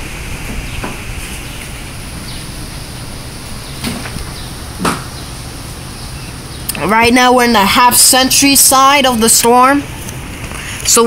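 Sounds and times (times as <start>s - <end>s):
wind rumble on microphone: 0.0s - 7.2s
wind gusting through trees: 0.0s - 11.0s.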